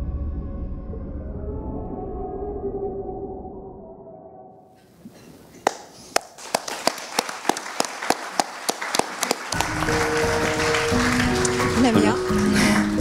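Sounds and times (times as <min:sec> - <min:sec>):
audience hand clapping: 0:05.6 - 0:13.0
film music: 0:09.4 - 0:13.0.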